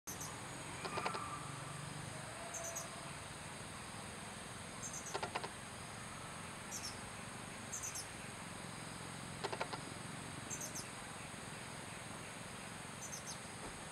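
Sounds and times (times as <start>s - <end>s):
high-pitched insect drone: 0.1s - 7.1s
rattling bursts of ticks: 4.8s - 5.6s, 9.4s - 9.9s.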